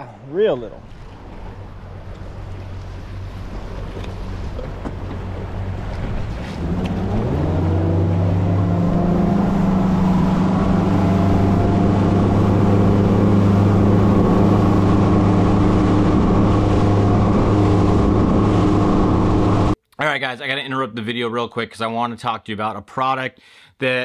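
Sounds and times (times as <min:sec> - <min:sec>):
outboard motor throttling up: 0:01.2 - 0:19.8.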